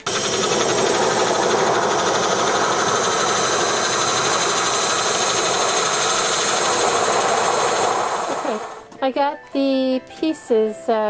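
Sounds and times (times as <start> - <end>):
power shears cutting sheet metal: 0.0 - 8.8.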